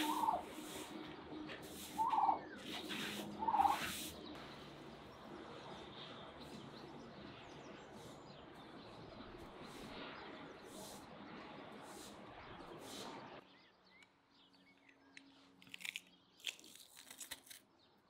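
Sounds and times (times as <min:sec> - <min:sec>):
turkey calling: 0:00.0 - 0:00.5, 0:01.9 - 0:04.0.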